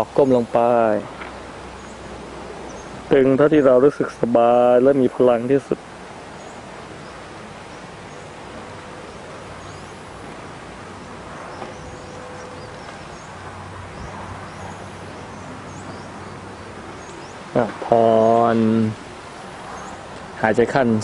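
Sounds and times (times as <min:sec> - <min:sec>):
outdoor background hiss: 0:00.0 - 0:21.0.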